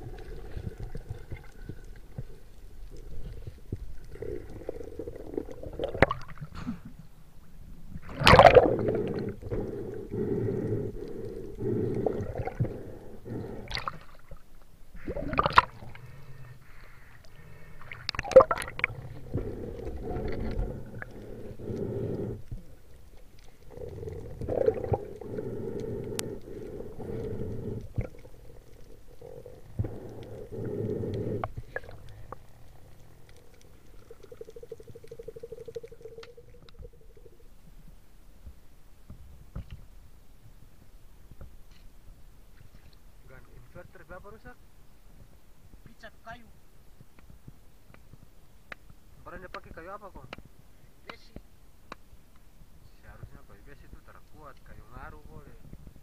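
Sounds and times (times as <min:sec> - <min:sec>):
water sloshing and gurgling: 0:00.0 - 0:38.0
water splashes: 0:07.9 - 0:09.7, 0:11.0 - 0:16.2, 0:17.3 - 0:21.7, 0:22.5 - 0:30.5.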